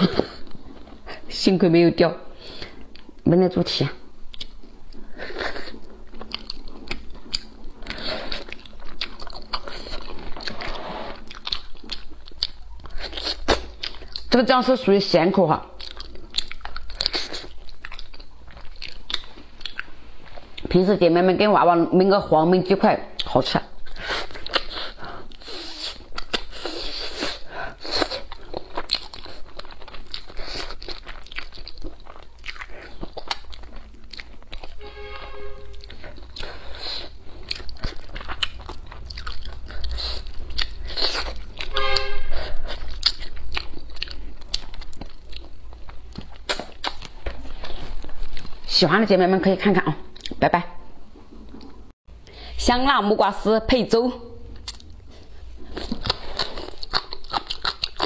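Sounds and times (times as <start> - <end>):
chewing with mouth clicks: 4.2 - 14.4, 15.7 - 20.7, 23.2 - 34.8, 35.6 - 48.7, 54.6 - 58.0.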